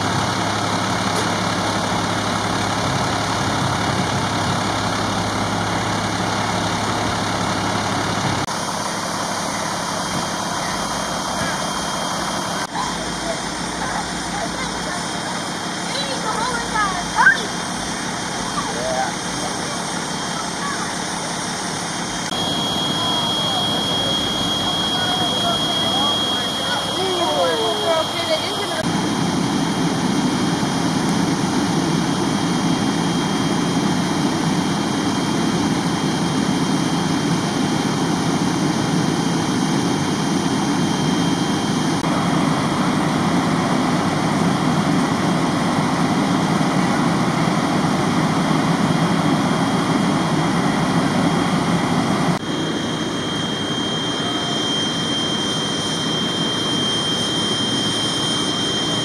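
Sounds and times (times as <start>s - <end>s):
vehicle engines idling: 0.0s - 59.0s
faint high whine: 16.2s - 45.1s, 51.5s - 59.0s.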